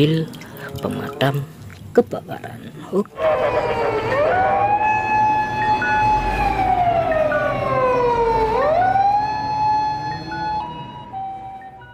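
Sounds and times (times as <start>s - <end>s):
fire engine wailing siren: 3.1s - 11.9s
ambulance two-tone siren: 3.2s - 11.9s.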